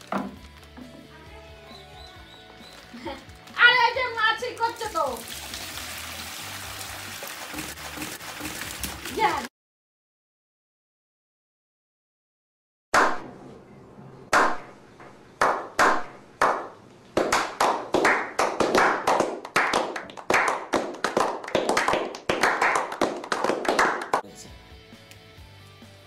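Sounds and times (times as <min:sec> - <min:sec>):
slow hand claps: 0:15.4 - 0:24.2
small group applause: 0:15.4 - 0:24.3.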